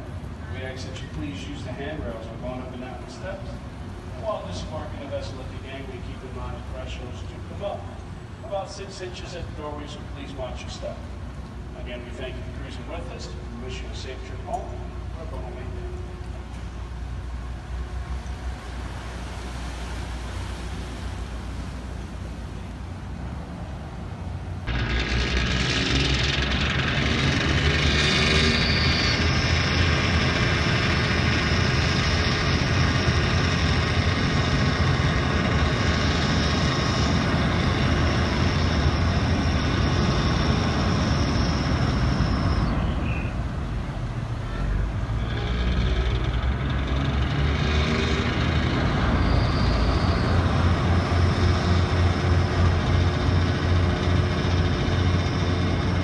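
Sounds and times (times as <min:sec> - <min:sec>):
propellers churning water: 0:00.0 - 0:56.0
ferry engine throbbing: 0:24.6 - 0:56.0.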